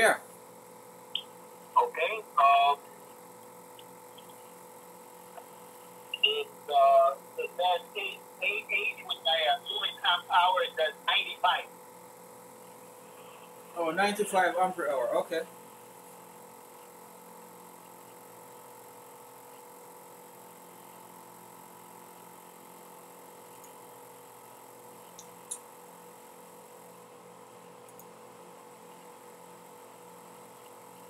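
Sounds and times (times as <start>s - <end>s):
faint electrical hum: 0.0s - 31.0s
computer mouse clicks: 23.5s - 23.8s, 25.1s - 25.6s, 27.8s - 28.1s.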